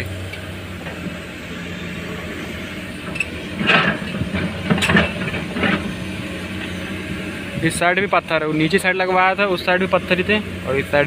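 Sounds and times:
heavy diesel machinery running: 0.0 - 11.0
metallic clanking and rattling: 2.6 - 10.4.

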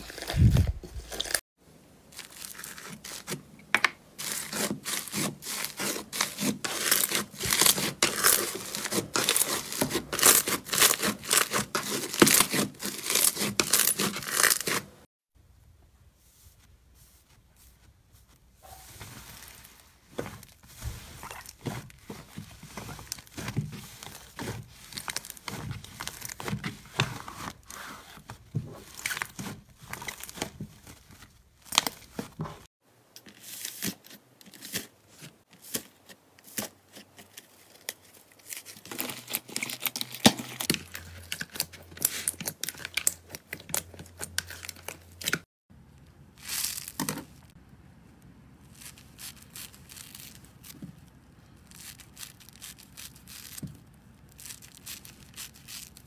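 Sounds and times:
foam sponge crunching: 4.2 - 15.1, 16.2 - 32.7, 46.4 - 47.6, 48.6 - 56.0.

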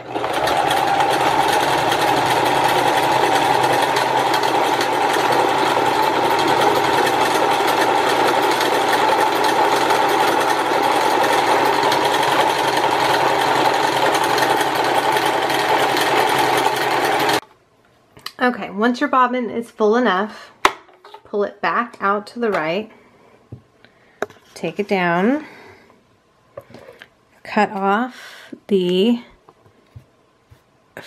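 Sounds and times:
sewing machine motor running: 0.0 - 17.4.

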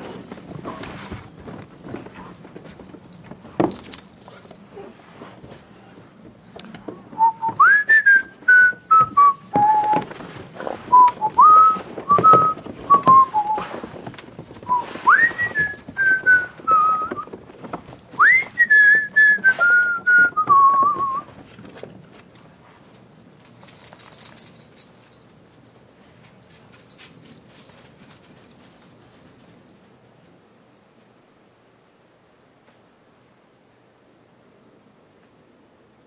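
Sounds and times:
person whistling a tune: 7.2 - 10.0, 10.9 - 13.7, 14.7 - 17.3, 18.2 - 21.3.

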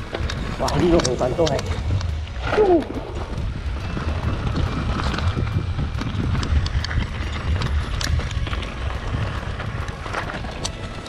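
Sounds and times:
bike rattling and clicking: 0.0 - 11.0
bike tyres rumbling on dirt trail: 0.0 - 11.0.

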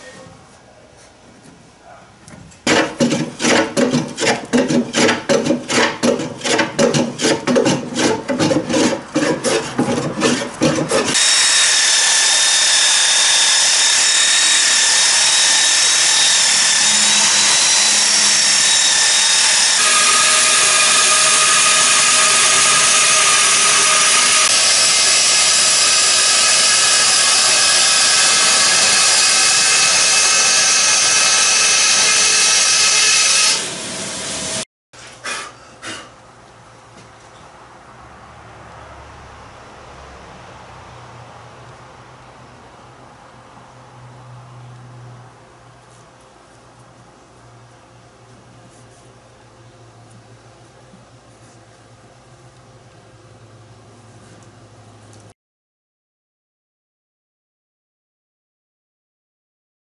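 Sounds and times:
bandsaw cutting wood: 2.6 - 34.6
hand tool strokes on wood: 2.7 - 11.6
belt sander running: 2.7 - 34.6.

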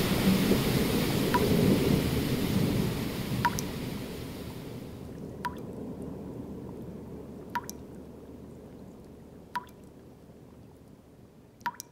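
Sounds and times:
water drops dripping: 1.3 - 1.6, 3.4 - 3.7, 5.2 - 5.8, 7.4 - 11.0, 11.6 - 11.9.

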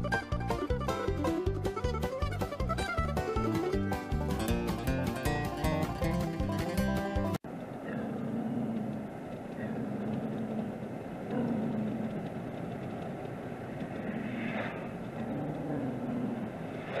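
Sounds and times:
road noise inside truck cab: 7.4 - 17.0
dog growling: 7.8 - 12.4, 15.1 - 16.7.

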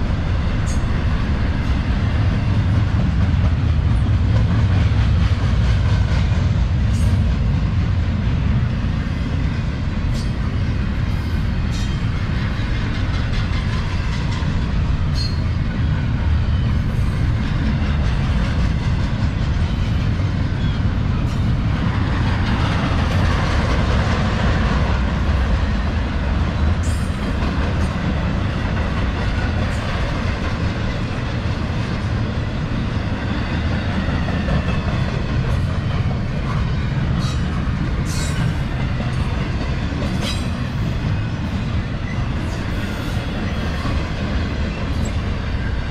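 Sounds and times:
freight train rumbling past: 0.0 - 45.9.

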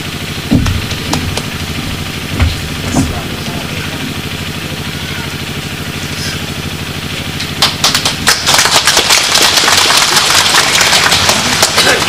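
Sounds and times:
low engine-like hum: 0.0 - 12.0
crowd applauding: 7.4 - 12.0.

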